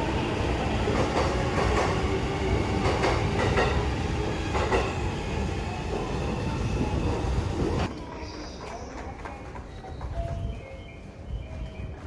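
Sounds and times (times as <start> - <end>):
train rumble: 0.0 - 12.0.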